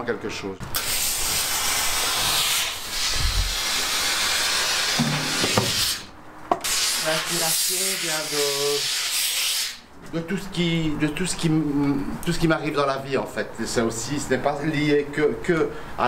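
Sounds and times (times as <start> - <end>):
steam hissing: 0.8 - 9.8.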